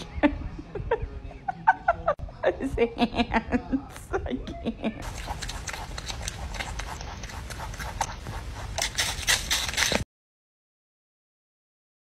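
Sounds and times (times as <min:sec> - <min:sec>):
rabbit crunching apple: 0:05.0 - 0:10.1.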